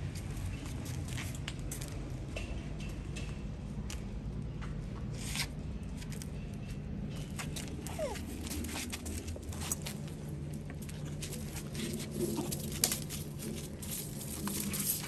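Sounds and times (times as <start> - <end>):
clicks crackles and rustles: 7.2 - 15.0
monkey squeak: 7.9 - 8.2.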